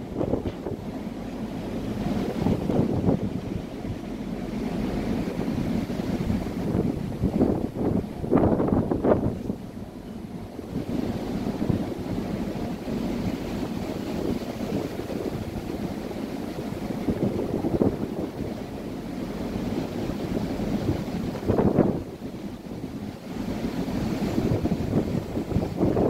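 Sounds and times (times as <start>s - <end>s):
rough sea: 0.0s - 26.0s
strong wind buffeting microphone: 0.0s - 26.0s.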